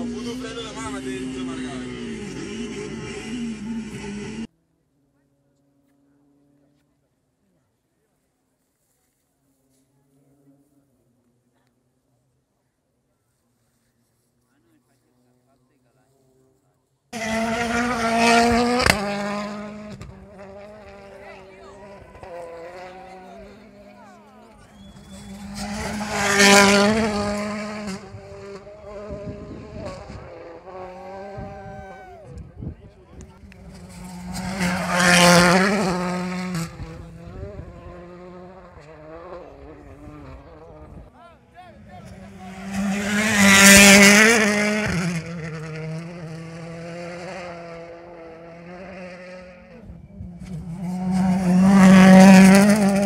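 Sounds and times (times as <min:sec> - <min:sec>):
distant rally car engine buzz: 0:00.0 - 0:07.0, 0:16.2 - 0:53.0
rally car passing at speed: 0:17.1 - 0:32.3, 0:33.1 - 0:41.1, 0:41.7 - 0:53.0.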